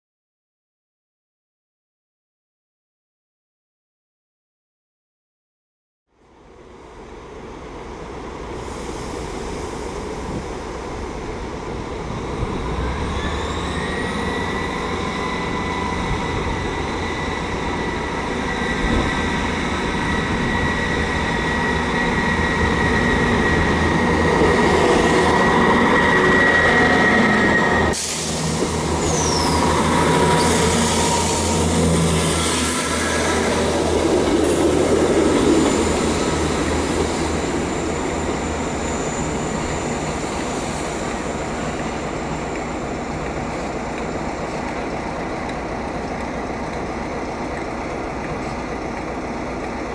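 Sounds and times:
diesel train approaching: 0:06.2 - 0:49.9
high squeal: 0:12.2 - 0:44.2.

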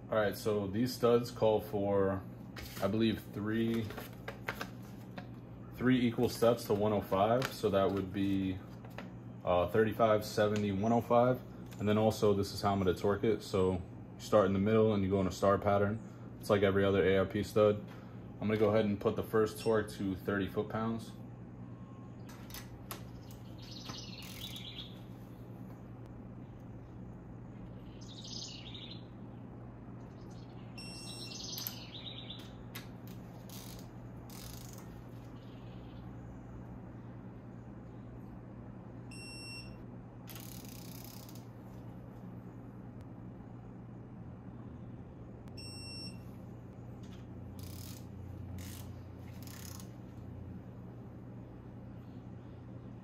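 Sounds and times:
steady low hum: 0:00.0 - 0:53.0
torque wrench beep: 0:30.8 - 0:31.8, 0:39.1 - 0:41.4, 0:45.6 - 0:46.2
torque wrench ratchet clicking: 0:33.5 - 0:34.8, 0:40.3 - 0:41.4, 0:47.6 - 0:49.9
short electronic beep: 0:45.6 - 0:46.2.

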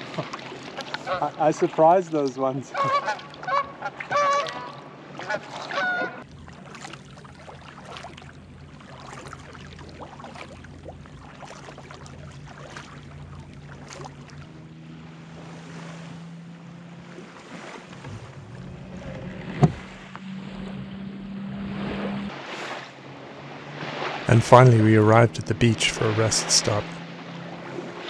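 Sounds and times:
paddle splashes and drips: 0:00.0 - 0:28.0
geese honking: 0:01.0 - 0:01.3, 0:02.7 - 0:06.2.

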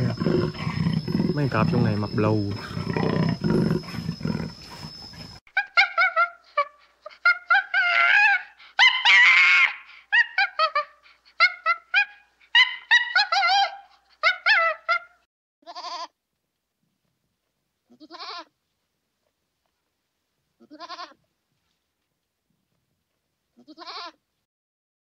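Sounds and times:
tiger growling: 0:00.0 - 0:05.4.

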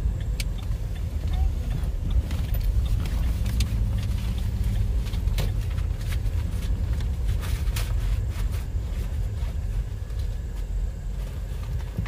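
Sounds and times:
car engine and tyres rumbling: 0:00.0 - 0:12.0.

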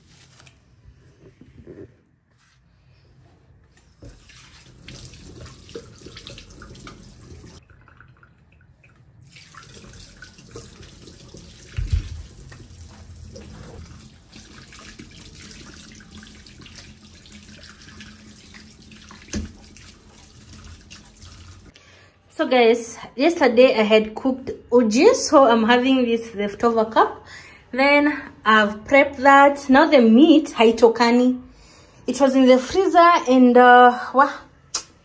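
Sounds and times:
tap running into sink: 0:10.5 - 0:13.9, 0:19.1 - 0:20.2.

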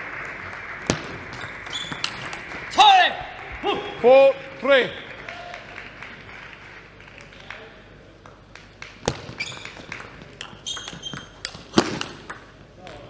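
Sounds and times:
shoe squeaks on floor: 0:01.4 - 0:02.1, 0:09.2 - 0:09.9, 0:10.6 - 0:11.4
table tennis ball clicks: 0:08.3 - 0:13.0.

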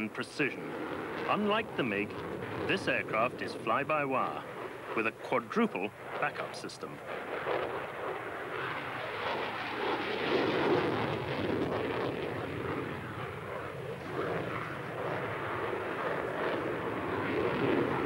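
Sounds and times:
jet engines roaring overhead: 0:00.0 - 0:18.0.

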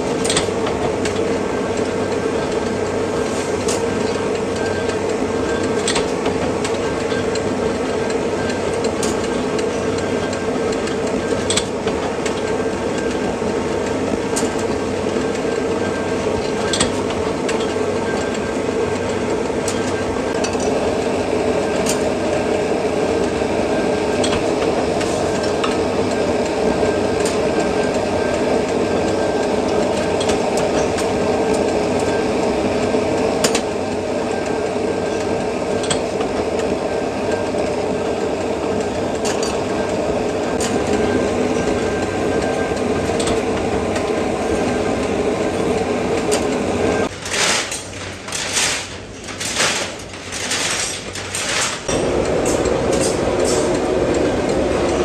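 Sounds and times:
machinery droning: 0:51.9 - 0:55.0.

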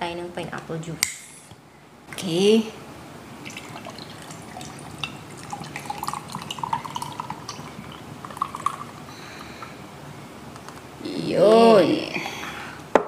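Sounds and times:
juice pouring over ice: 0:03.5 - 0:09.6.

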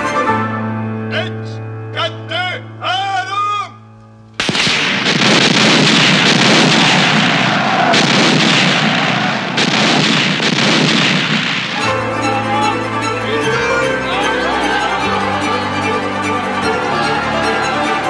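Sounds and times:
orchestral film music: 0:00.0 - 0:01.8, 0:11.8 - 0:18.0
artillery shells exploding: 0:04.4 - 0:11.8.

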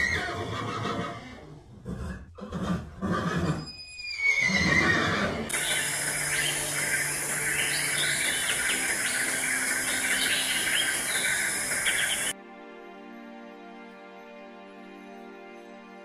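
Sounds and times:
horse whinnying: 0:00.0 - 0:05.5
steady hissing din: 0:05.5 - 0:12.4.

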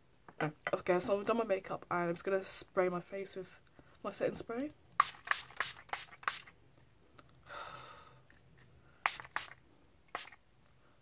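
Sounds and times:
spray bottle spritzes: 0:05.0 - 0:06.5, 0:09.0 - 0:10.4
soft breathy hiss: 0:07.4 - 0:11.0.

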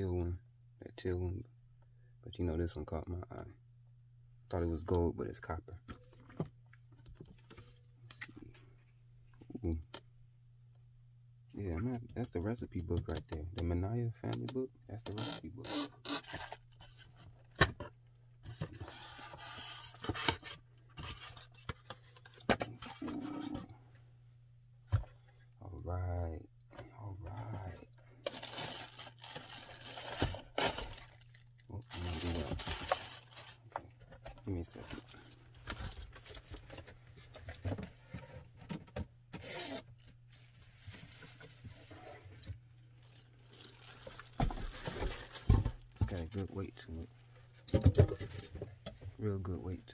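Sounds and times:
plastic wrapping rustling: 0:28.2 - 0:38.1, 0:39.4 - 0:46.4.

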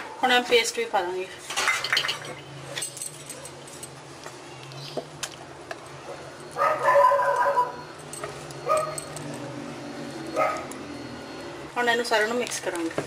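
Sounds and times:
dog barking: 0:06.6 - 0:07.8, 0:08.6 - 0:09.1, 0:10.4 - 0:10.7
dog yelping: 0:06.6 - 0:07.9, 0:08.6 - 0:09.1, 0:10.3 - 0:10.8.

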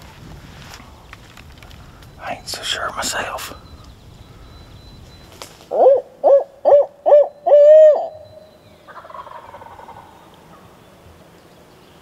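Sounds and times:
owl hooting: 0:05.7 - 0:10.2
turkey gobbling: 0:08.9 - 0:10.1.

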